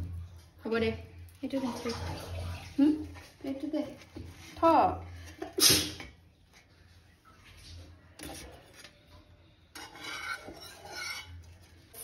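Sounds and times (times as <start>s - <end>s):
sandwiches scraping on metal plate: 9.7s - 12.0s.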